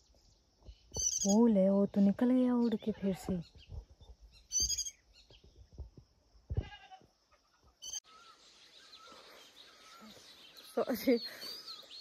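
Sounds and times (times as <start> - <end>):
distant bird chirps: 0.0 - 12.0
bird harsh high calls: 0.9 - 1.5, 4.4 - 5.1, 7.8 - 12.0.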